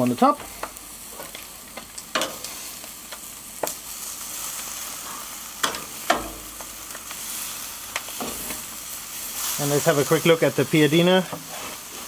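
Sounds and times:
steaks sizzling on a grill: 0:00.0 - 0:12.0
metal tongs clacking on grate: 0:00.4 - 0:02.5, 0:05.6 - 0:06.7.

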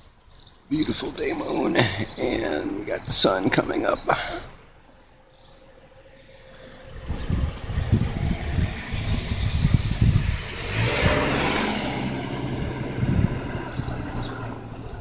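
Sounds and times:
car driving past: 0:05.3 - 0:15.0
low rumbles: 0:05.7 - 0:15.0.

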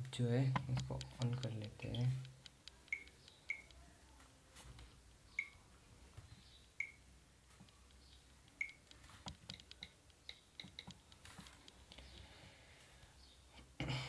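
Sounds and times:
smartphone keypad clicks: 0:00.5 - 0:03.8, 0:08.0 - 0:11.2.

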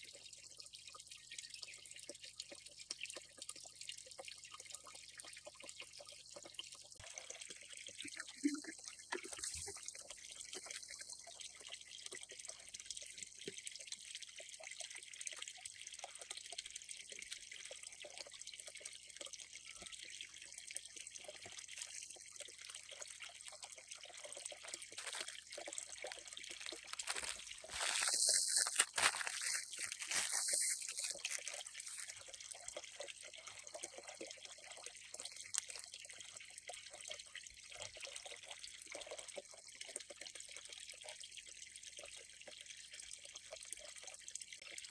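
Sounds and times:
water trickling into pond: 0:00.0 - 0:44.9
water splashing: 0:21.6 - 0:32.3.

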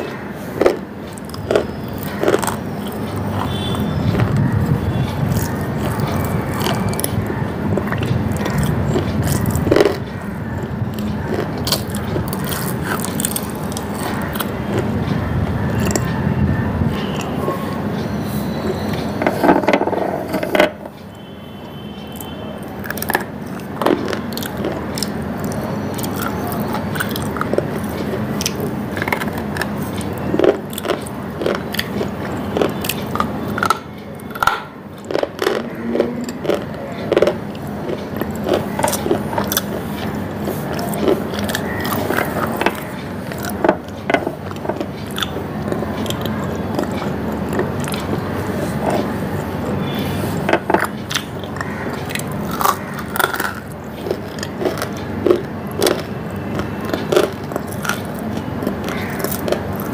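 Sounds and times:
crunching bites of hard lump: 0:05.1 - 0:15.0, 0:22.1 - 0:59.9.

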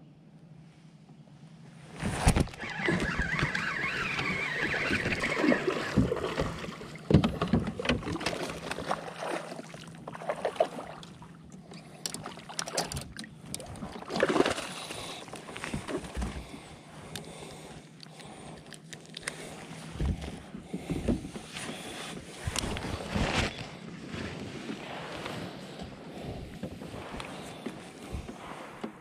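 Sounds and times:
water splashes: 0:02.7 - 0:17.1.

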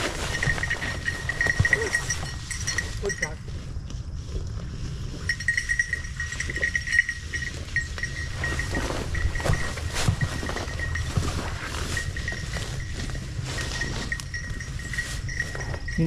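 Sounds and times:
dog collar bell jingling: 0:00.0 - 0:03.7, 0:05.1 - 0:16.0
wind rumble on microphone: 0:00.0 - 0:16.0.

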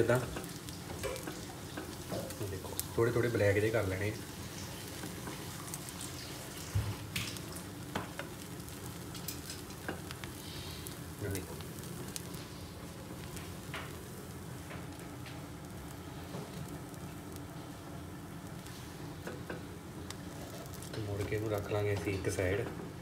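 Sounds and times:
bread sizzling in frying pan: 0:00.0 - 0:23.0.

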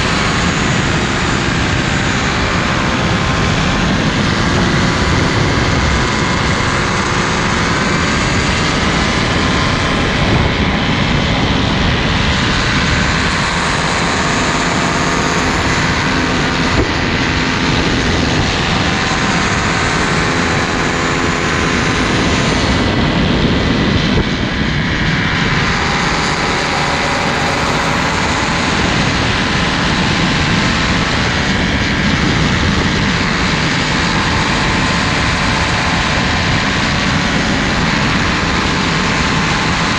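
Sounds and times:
heavy wind noise: 0:00.0 - 0:39.9
paramotor engine and propeller: 0:00.0 - 0:39.9.

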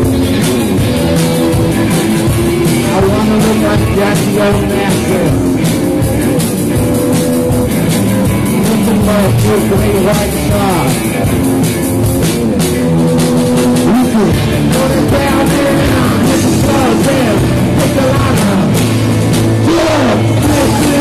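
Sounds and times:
man singing: 0:00.0 - 0:05.8, 0:08.3 - 0:11.4, 0:12.4 - 0:21.0
drum kit: 0:00.0 - 0:21.0
electric guitar: 0:00.0 - 0:21.0
keyboard: 0:00.0 - 0:21.0.

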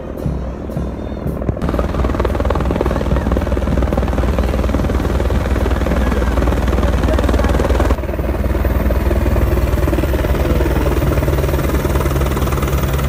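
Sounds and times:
helicopter rotor blades chopping: 0:00.1 - 0:13.0.

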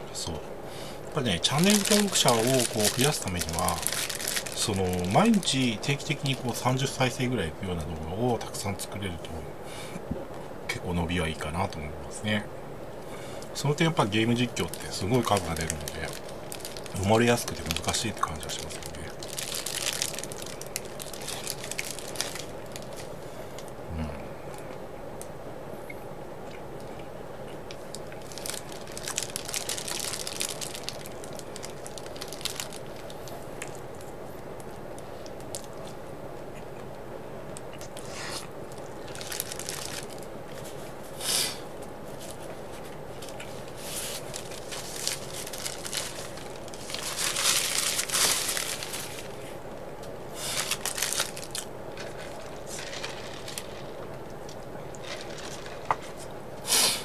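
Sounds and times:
faint steady hum: 0:00.0 - 0:57.0
paper wrapping crinkling: 0:01.2 - 0:07.2, 0:14.0 - 0:23.2, 0:28.1 - 0:36.0, 0:38.8 - 0:41.0, 0:42.1 - 0:49.5, 0:50.3 - 0:56.3
food crunching: 0:01.5 - 0:05.6, 0:26.4 - 0:33.8, 0:50.5 - 0:56.3.

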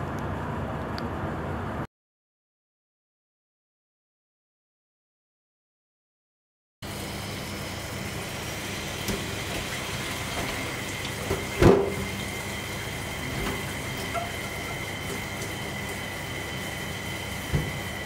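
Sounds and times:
water running into sink: 0:06.8 - 0:18.0.

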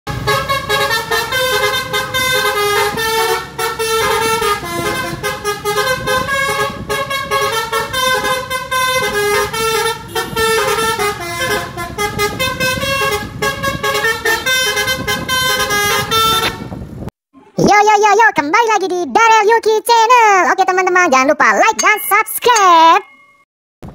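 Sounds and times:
multi-tone air horn tune: 0:00.1 - 0:16.8
engine and road noise: 0:00.1 - 0:17.6.

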